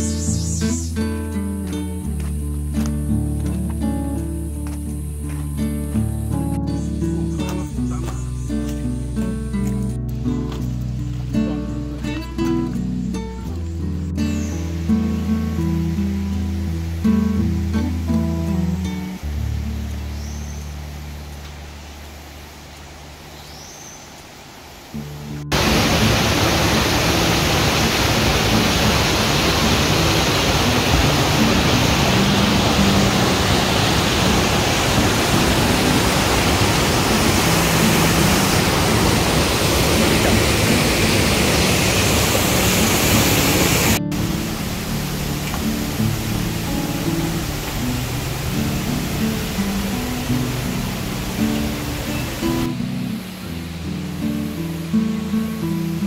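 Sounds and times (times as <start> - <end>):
acoustic guitar music: 0.0 - 21.5, 24.9 - 56.0
stream tumbling over rocks: 1.6 - 5.8, 24.1 - 56.0.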